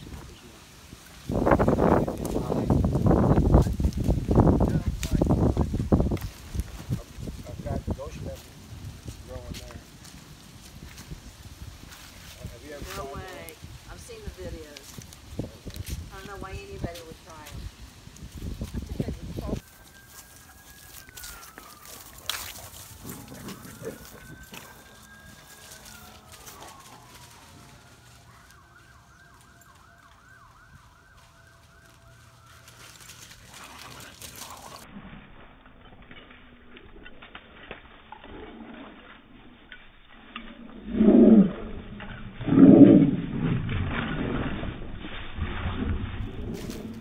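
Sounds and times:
faint siren wailing: 0:19.4 - 0:33.6
low dog rumble: 0:21.0 - 0:28.6, 0:40.6 - 0:47.0.

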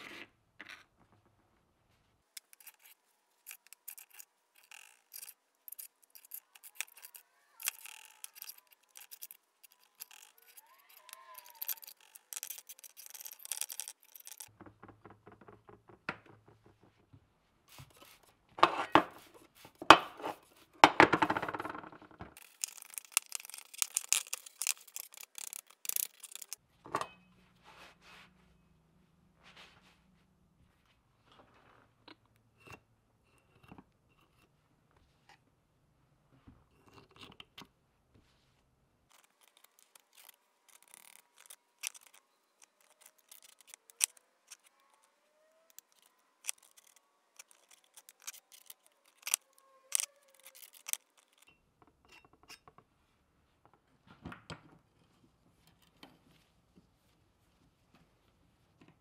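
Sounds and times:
scraping grease off metal: 0:02.4 - 0:14.6, 0:22.4 - 0:26.6, 0:39.1 - 0:51.5.

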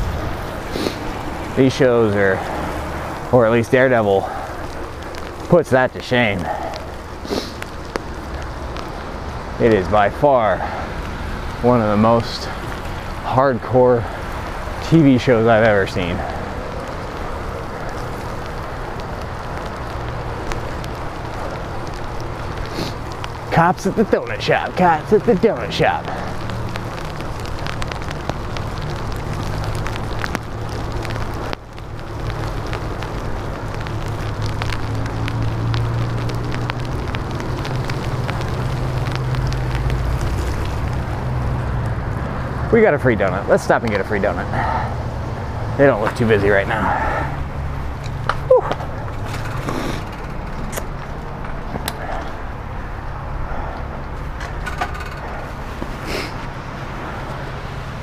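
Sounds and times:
wind rumble on microphone: 0:00.0 - 0:24.8
bicycle tyres on wet pavement: 0:00.0 - 0:58.0.

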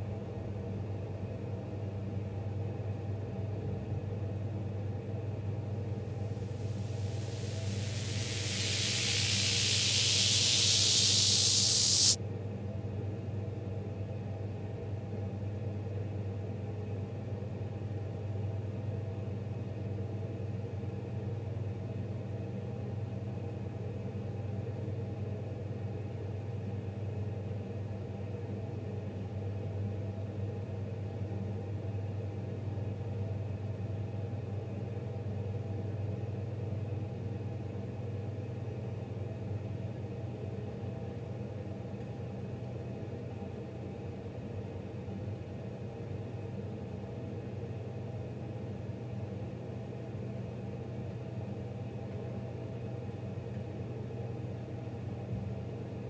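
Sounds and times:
loud hiss: 0:06.2 - 0:12.2.

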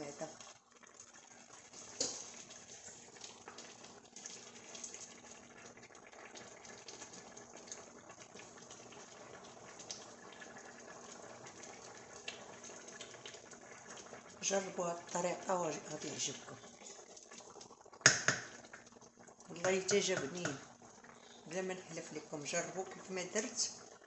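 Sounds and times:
wooden spoon stirring: 0:00.0 - 0:05.3, 0:19.5 - 0:23.7
stew simmering: 0:00.0 - 0:24.0.

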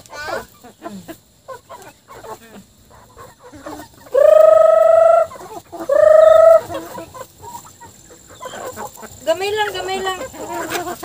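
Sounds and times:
chicken calling: 0:00.0 - 0:11.0.

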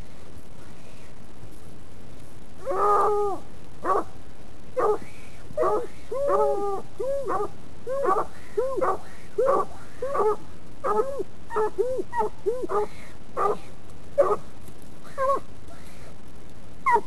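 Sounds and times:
dogs barking: 0:07.3 - 0:14.4.

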